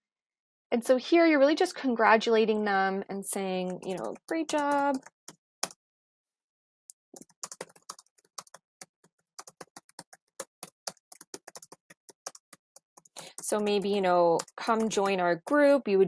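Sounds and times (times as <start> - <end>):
keyboard typing clicks: 3.7 - 5.8, 7.2 - 15.2.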